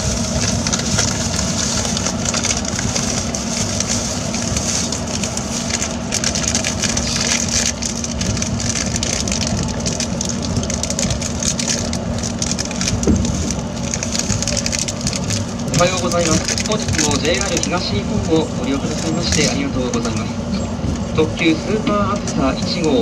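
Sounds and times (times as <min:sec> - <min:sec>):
constant low hum: 0:00.0 - 0:23.0
train wheels rumbling on rails: 0:00.0 - 0:23.0.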